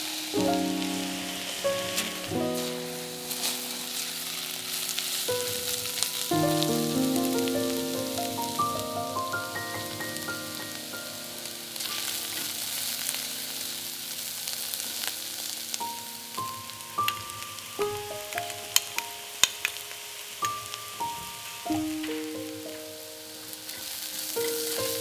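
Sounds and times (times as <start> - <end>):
melodic background music: 0.0 - 12.4
vegetables sizzling in oil: 0.0 - 25.0.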